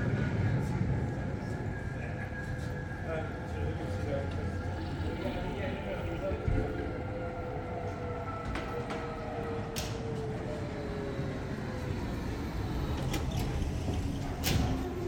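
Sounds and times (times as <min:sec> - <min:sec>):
electric bus motor whining: 0:03.5 - 0:15.0.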